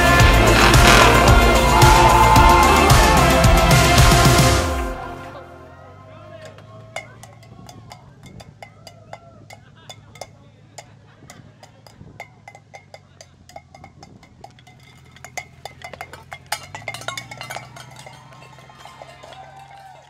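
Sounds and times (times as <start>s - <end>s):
truck engine hum: 0.0s - 20.0s
cans clanking on pavement: 6.4s - 20.0s.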